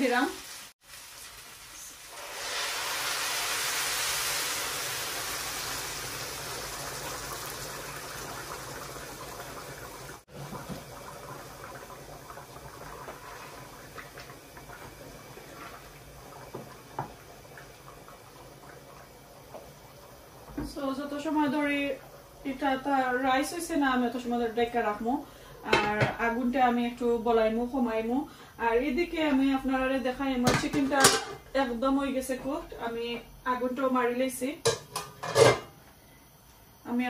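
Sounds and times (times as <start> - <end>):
water pouring into a pot: 0.1 - 25.6.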